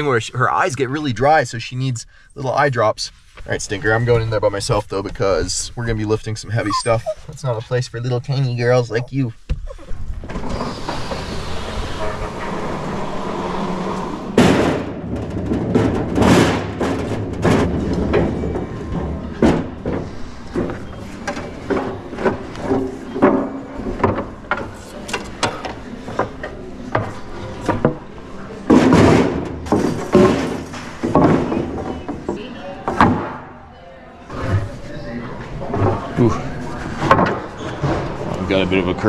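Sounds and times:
wooden boards knocking together: 0:28.7 - 0:33.4.

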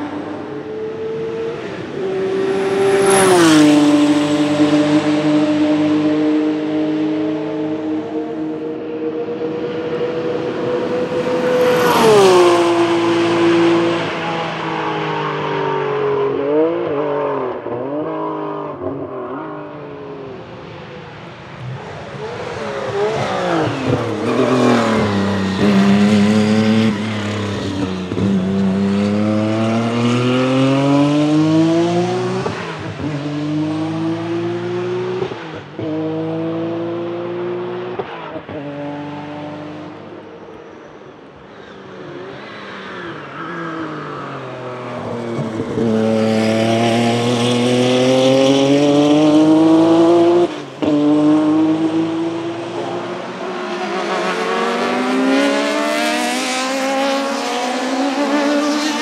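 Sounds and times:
race car engine passing: 0:00.0 - 0:40.8, 0:41.5 - 0:59.0
race car engine accelerating: 0:21.8 - 0:40.1, 0:44.8 - 0:59.0.

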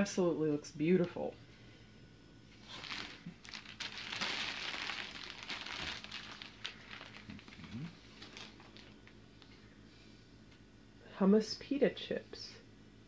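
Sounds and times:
foil and plastic crinkling: 0:02.6 - 0:09.1.

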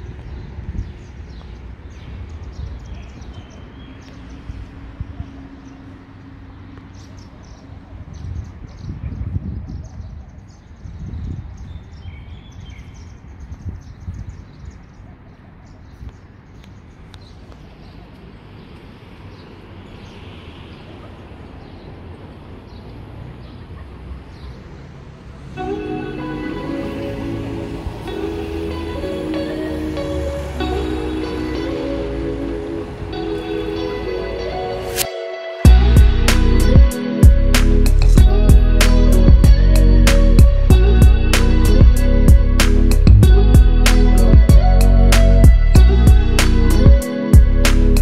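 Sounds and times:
low rumble: 0:35.7 - 0:48.0.

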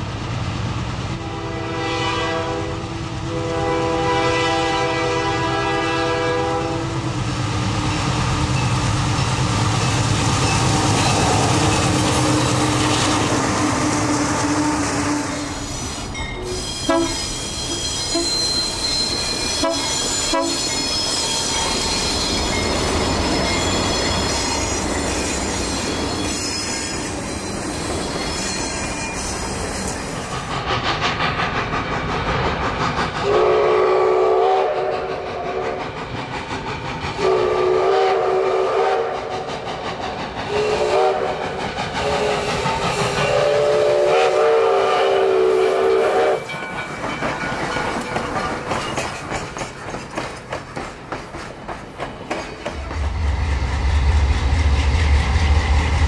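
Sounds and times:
diesel locomotive engines: 0:00.0 - 0:56.0
train wheels rolling on rails: 0:00.0 - 0:56.0
locomotive air horn blasts: 0:01.2 - 0:07.0, 0:16.5 - 0:18.4, 0:19.6 - 0:20.7, 0:33.3 - 0:35.7, 0:37.2 - 0:39.2, 0:40.5 - 0:41.4, 0:43.3 - 0:46.5
metallic knocks and clanks: 0:46.6 - 0:53.0.

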